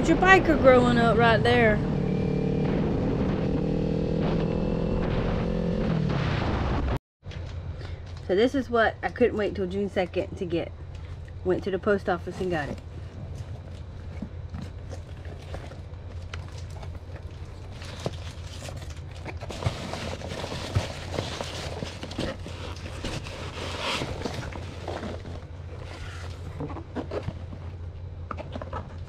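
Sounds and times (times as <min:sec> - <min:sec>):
steady low hum: 0:00.0 - 0:29.0
rustling packing peanuts: 0:12.2 - 0:29.0.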